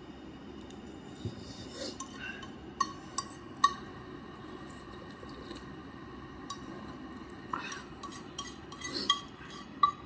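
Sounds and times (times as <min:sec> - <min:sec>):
spoon clinking against bowl: 0:07.6 - 0:10.0.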